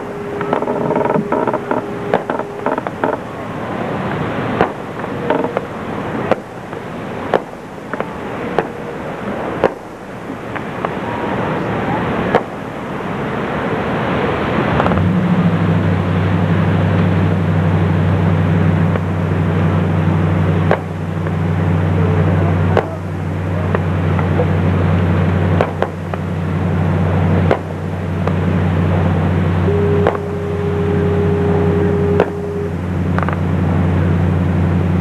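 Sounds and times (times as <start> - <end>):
fireworks bangs: 0.0 - 11.3, 20.6 - 21.5, 25.5 - 26.5, 27.4 - 28.6, 29.6 - 33.5
low droning hum: 0.0 - 35.0.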